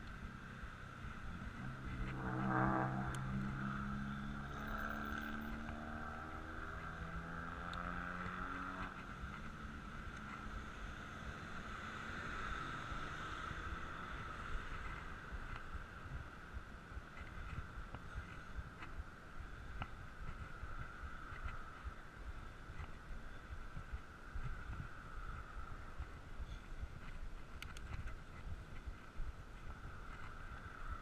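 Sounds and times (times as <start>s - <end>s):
wind and road noise: 0.0s - 31.0s
vehicle engine passing by: 1.5s - 9.1s.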